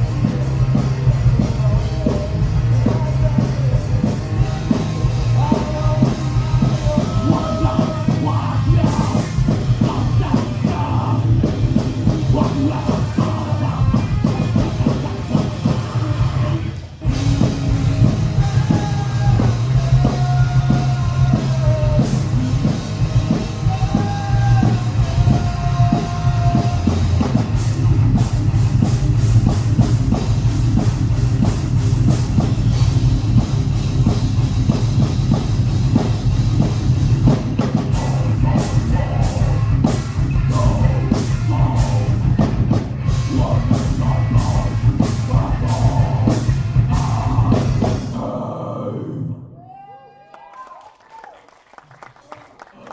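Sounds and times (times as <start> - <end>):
rock band playing live: 0.0 - 48.4
person singing: 1.2 - 11.5, 12.2 - 16.8, 18.2 - 22.4, 23.4 - 27.4, 37.6 - 49.4
fast drum hits: 17.1 - 48.1.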